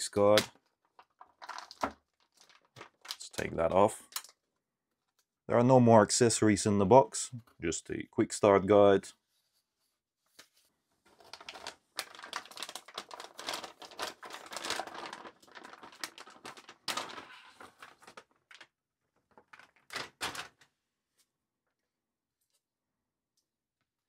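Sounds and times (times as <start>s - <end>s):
plastic bag crinkling: 0.8s - 3.6s, 11.1s - 20.6s.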